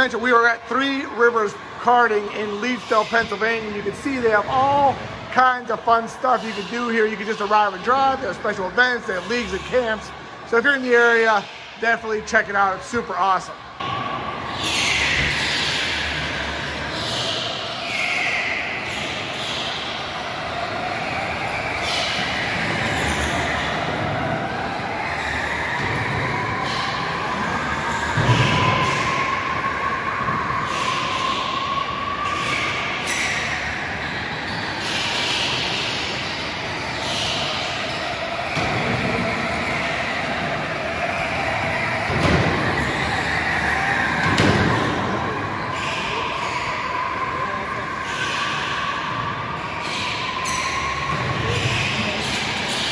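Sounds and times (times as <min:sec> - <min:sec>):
echoing tyre noise: 0:00.0 - 0:52.9
electric go-kart motors whining: 0:13.8 - 0:52.9.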